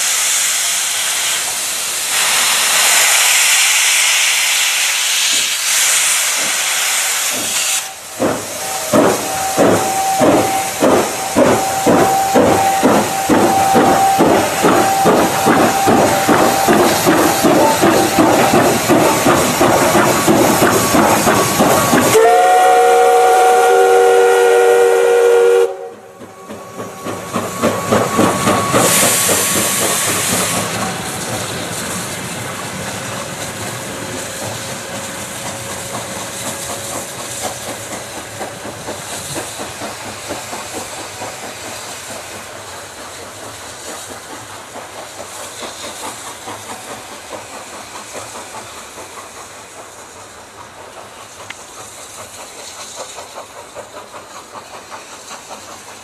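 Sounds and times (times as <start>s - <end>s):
steam hiss: 0.0s - 56.0s
steam locomotive whistle: 6.9s - 19.4s, 20.3s - 31.2s
locomotive rhythmic beat: 8.0s - 23.3s, 25.7s - 56.0s.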